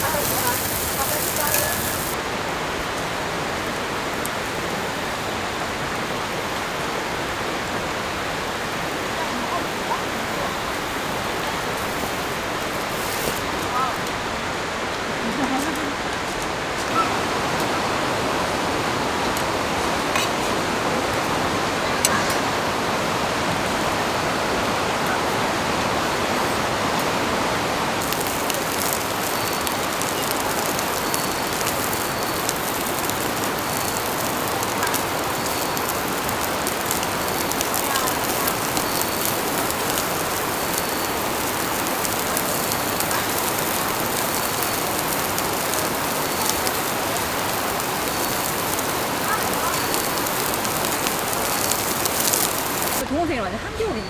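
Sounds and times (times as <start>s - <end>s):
meat sizzling on grill: 0.0s - 2.2s, 10.7s - 13.5s, 28.0s - 53.0s
rushing water: 0.0s - 54.0s.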